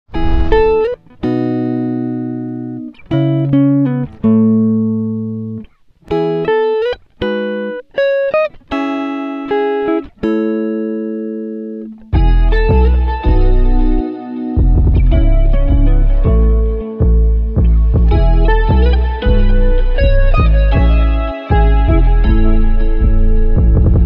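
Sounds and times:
plucked string music: 0.1s - 24.0s.

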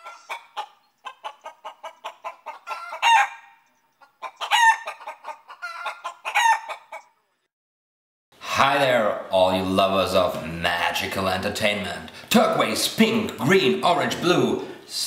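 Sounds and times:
chicken clucking and cackling: 0.0s - 7.4s.

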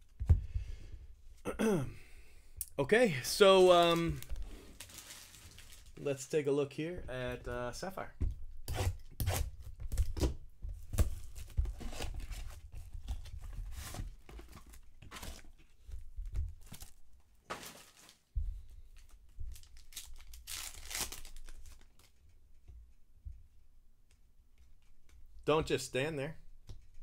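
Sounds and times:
cardboard and foil tearing: 3.7s - 6.0s, 17.5s - 18.2s, 19.6s - 22.1s.

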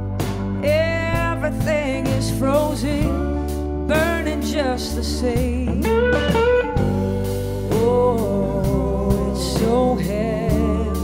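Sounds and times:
regular drum hits: 0.0s - 2.3s, 5.7s - 10.6s
blues-rock band playing: 0.0s - 11.0s
steady bass: 0.0s - 11.0s.

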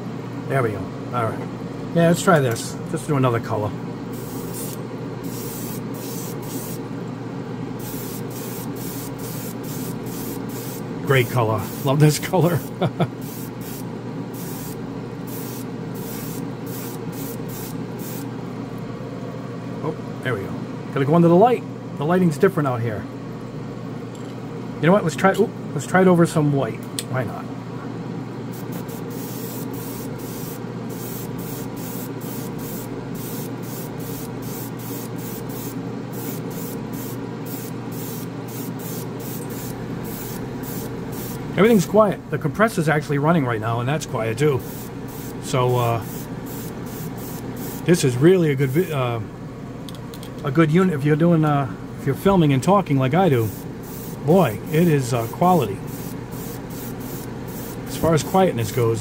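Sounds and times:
steady low hum: 0.0s - 59.0s
spray booth fan and water: 4.0s - 7.0s, 7.7s - 18.4s, 28.4s - 43.3s, 43.9s - 48.8s, 52.0s - 59.0s
airbrush spraying hissing bursts: 4.1s - 6.8s, 7.8s - 18.3s, 28.5s - 41.6s, 44.5s - 48.0s, 53.3s - 58.2s.

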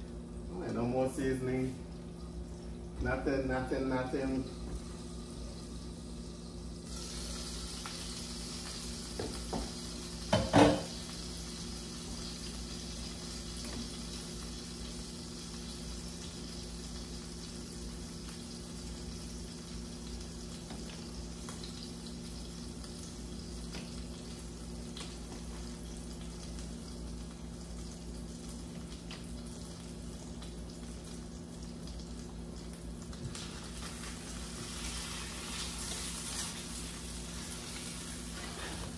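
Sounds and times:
food sizzling in hot pan: 4.5s - 38.9s
cookware knocks and clatter: 10.4s - 10.9s.

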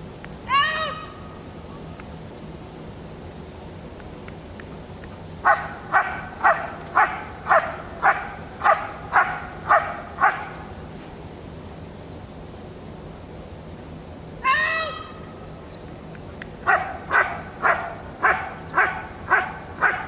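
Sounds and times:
dog barking: 5.4s - 10.5s, 16.7s - 20.0s.

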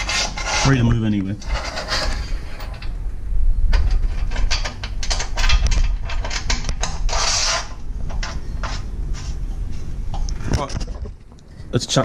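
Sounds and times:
metal scrape: 0.0s - 3.0s, 3.8s - 9.5s
metallic clicks and rattles: 3.7s - 7.3s.

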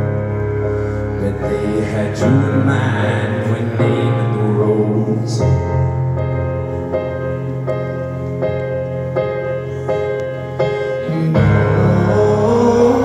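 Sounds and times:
keyboard piano chords: 0.0s - 13.0s.

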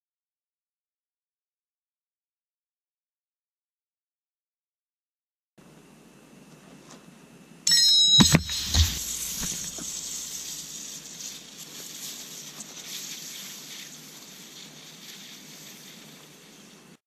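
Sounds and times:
anvil slamming onto can: 8.2s - 9.6s
lighter thuds: 8.2s - 10.1s
aerosol can hissing: 8.3s - 17.0s.

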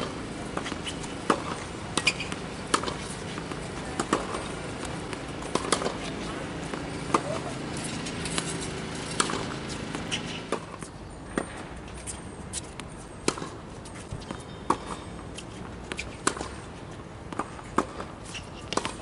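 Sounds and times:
tennis racket hits: 0.0s - 10.8s
tennis ball bounces: 0.0s - 19.0s.

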